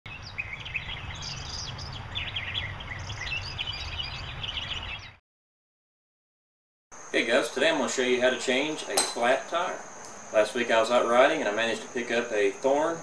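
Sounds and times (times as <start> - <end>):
small birds chirping: 0.1 - 5.2.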